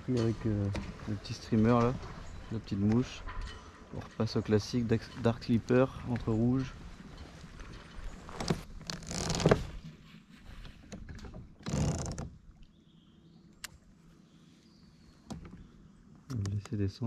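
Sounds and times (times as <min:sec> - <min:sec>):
fishing tackle rustling and whirring: 0:00.0 - 0:12.7, 0:13.4 - 0:16.8
sharp clicks: 0:16.3 - 0:16.8.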